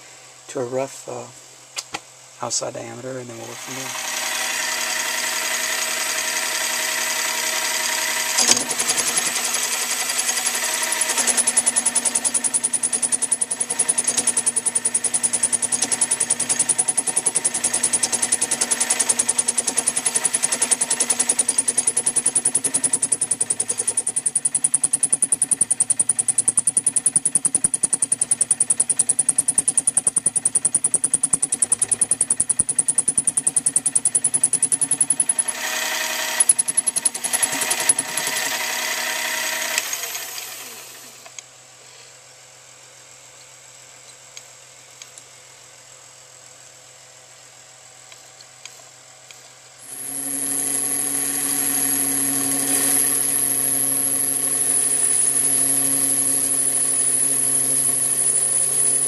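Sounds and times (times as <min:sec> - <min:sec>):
metal lathe cutting: 0:03.6 - 0:25.2, 0:34.2 - 0:41.1, 0:49.8 - 0:59.0.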